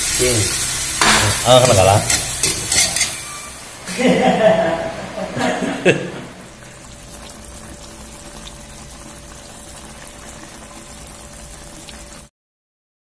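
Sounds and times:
faint steady hum: 2.3 - 12.3
pot simmering and bubbling: 4.8 - 12.3.

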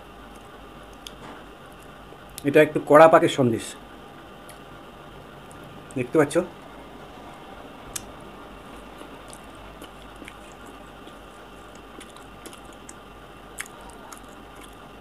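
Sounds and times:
person chewing: 7.9 - 15.0
wet mouth clicks and smacks: 9.3 - 14.8.

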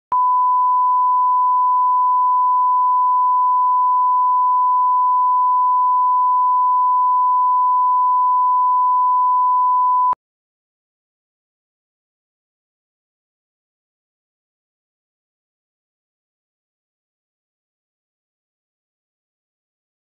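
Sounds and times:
steady sine tone: 0.1 - 10.2.

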